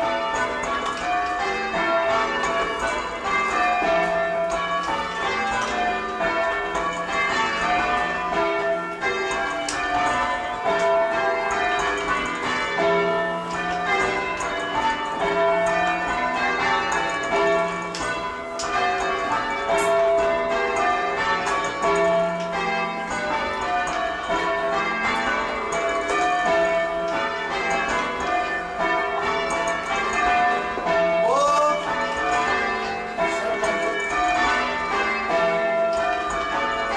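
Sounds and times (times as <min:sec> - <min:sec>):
church bells change ringing: 0:00.0 - 0:36.9.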